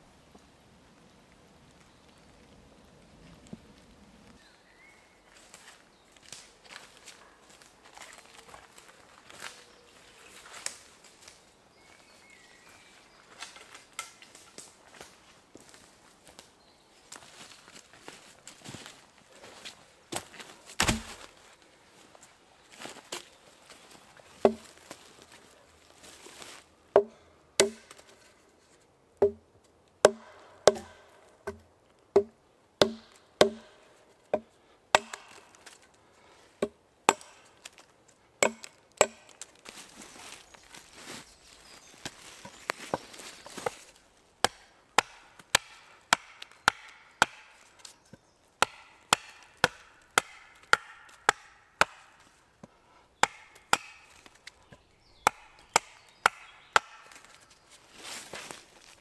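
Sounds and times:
axe chopping wood: 20.1s - 21.3s, 24.4s - 24.8s, 26.9s - 28.1s, 29.2s - 29.4s, 30.0s - 35.8s, 36.6s - 37.8s, 38.4s - 39.5s, 44.4s - 47.7s, 48.6s - 52.3s, 53.2s - 54.6s, 55.2s - 57.4s.

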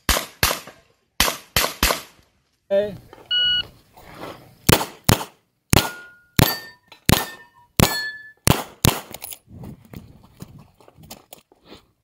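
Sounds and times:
handgun shots: 4.7s - 9.2s
steel targets ringing: 5.8s - 8.4s.

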